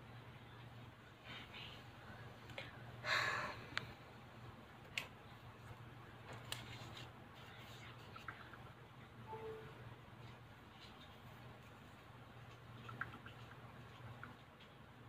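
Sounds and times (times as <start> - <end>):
low steady hum: 0.0 - 15.0
paper rustle: 6.3 - 8.1.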